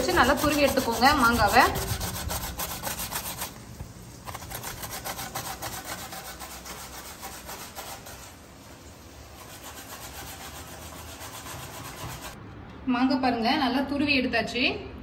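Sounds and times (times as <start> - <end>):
mango rasping on a grater: 0.0 - 3.6, 4.2 - 8.4, 9.3 - 12.4.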